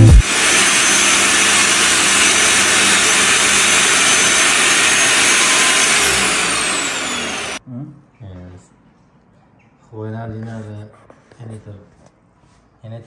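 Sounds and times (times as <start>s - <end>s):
saw blade spinning down: 0.0s - 7.6s
table saw ripping wood: 0.0s - 7.6s.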